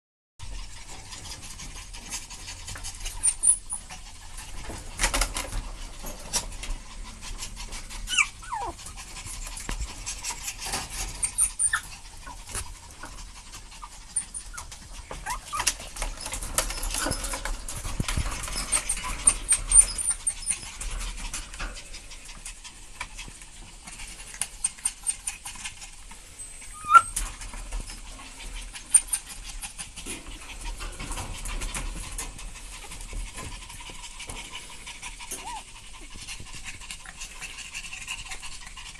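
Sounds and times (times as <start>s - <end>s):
puppies squeaking: 0.6s - 4.2s, 7.6s - 13.1s, 13.7s - 20.9s, 24.6s - 30.0s, 32.4s - 35.8s.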